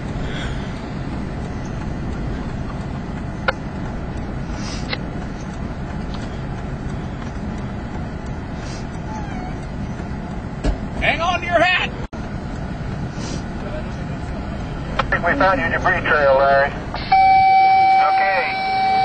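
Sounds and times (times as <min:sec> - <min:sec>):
vehicle rumble from inside cabin: 0:00.0 - 0:19.0
sharp clicks: 0:01.3 - 0:10.4.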